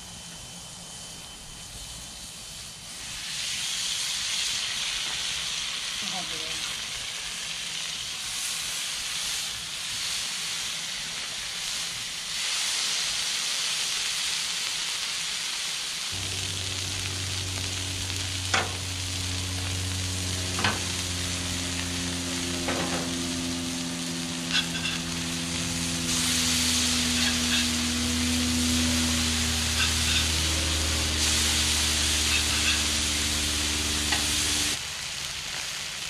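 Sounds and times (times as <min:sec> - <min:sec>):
patties sizzling on a griddle: 0:01.8 - 0:36.0
steady low hum: 0:16.2 - 0:34.8
metal clinks on griddle: 0:18.5 - 0:18.8, 0:20.6 - 0:20.9, 0:24.5 - 0:25.0.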